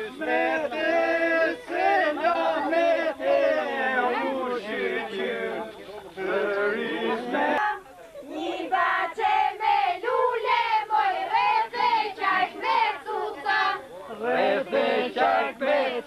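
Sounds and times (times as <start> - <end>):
women singing together: 0.0 - 16.0.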